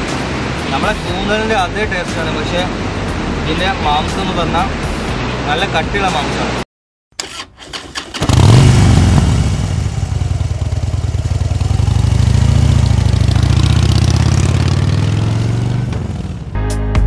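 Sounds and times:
motorcycle engine running: 8.2s - 16.5s.

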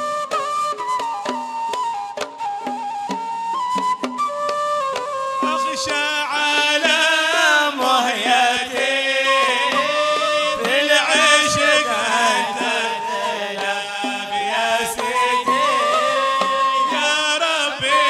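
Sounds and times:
man chanting devotional song: 5.4s - 18.0s.

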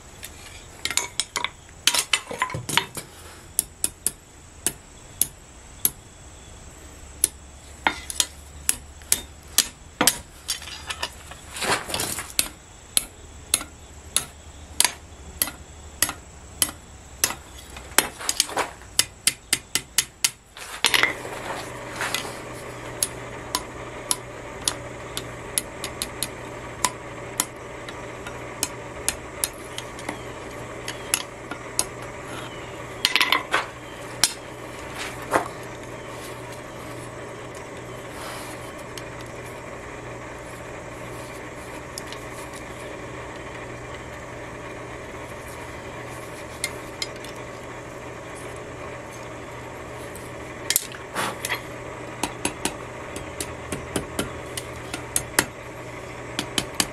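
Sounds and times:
steady low hum: 0.0s - 56.9s
hammer tapping on anvil: 12.4s - 17.4s, 18.0s - 21.1s, 52.2s - 55.6s, 56.4s - 56.9s.

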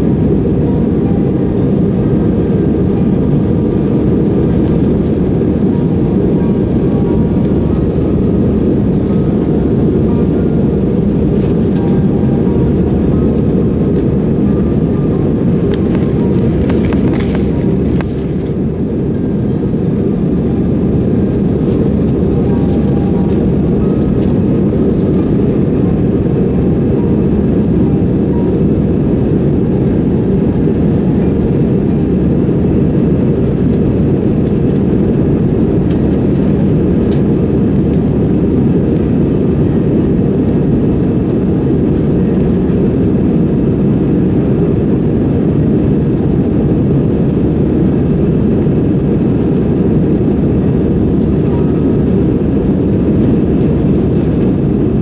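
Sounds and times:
jet engines rumbling: 0.0s - 55.0s
rushing air: 1.7s - 37.1s.

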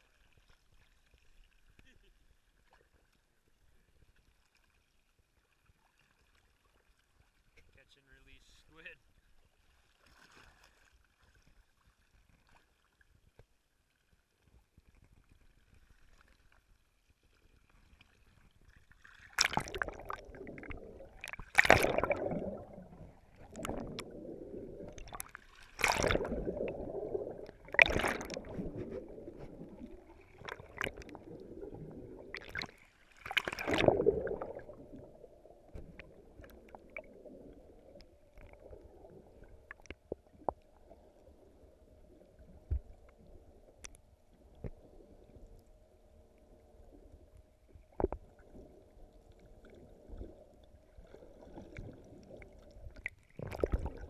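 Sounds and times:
water sloshing and gurgling: 0.0s - 8.4s, 9.1s - 54.0s
sharp splashes and knocks: 19.2s - 22.4s, 24.9s - 26.6s, 27.6s - 29.6s, 32.3s - 34.7s.

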